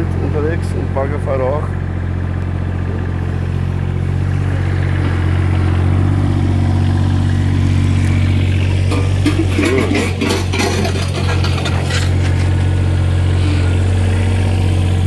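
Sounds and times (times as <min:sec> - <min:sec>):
diesel engine running: 0:00.0 - 0:15.0
knocks and clatter: 0:08.7 - 0:12.8.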